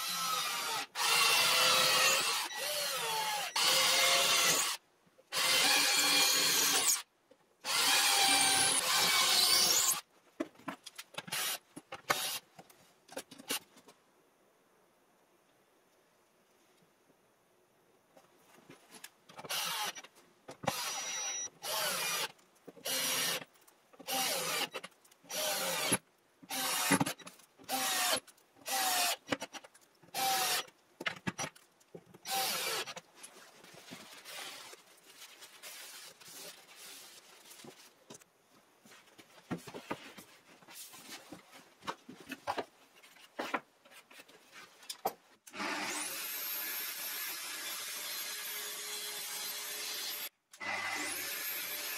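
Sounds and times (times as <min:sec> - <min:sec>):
drill driving screws: 0:00.0 - 0:07.0, 0:07.7 - 0:10.0, 0:11.3 - 0:12.4, 0:19.5 - 0:29.4, 0:30.1 - 0:30.7, 0:32.2 - 0:33.0, 0:45.5 - 0:51.9.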